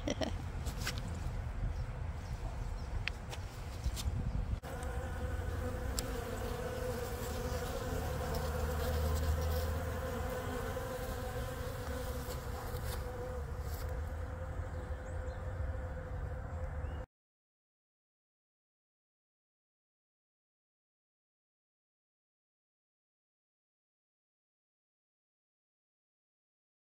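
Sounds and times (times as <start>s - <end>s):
bees buzzing: 4.6s - 17.0s.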